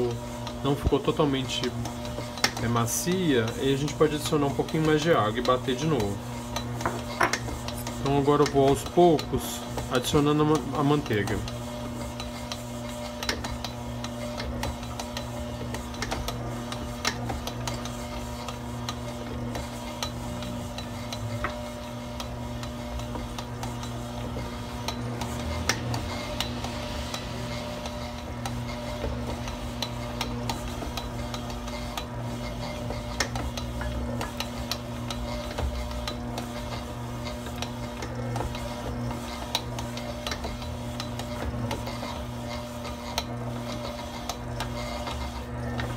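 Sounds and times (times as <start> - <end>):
stand mixer motor running: 0.0 - 45.9
sharp clicks and knocks: 6.6 - 9.9.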